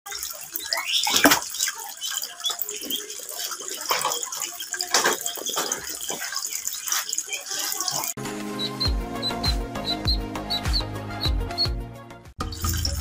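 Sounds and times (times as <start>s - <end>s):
loud water splashes: 0.1s - 8.2s
water pouring into paddling pool: 0.1s - 8.2s
ducklings peeping: 8.6s - 11.8s.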